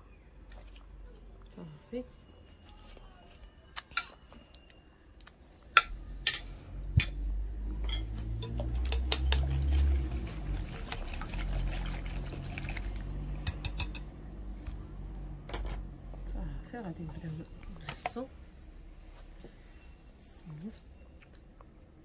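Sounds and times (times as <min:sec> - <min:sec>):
liquid sloshing: 0:08.4 - 0:14.0.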